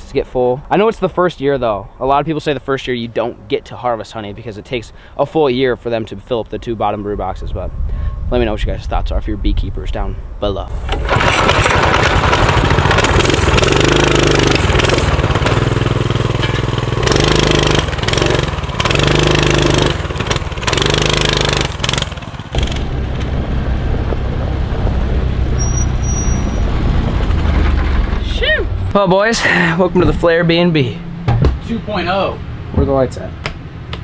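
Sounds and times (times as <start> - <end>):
mini bike engine revving: 10.7 - 23.4.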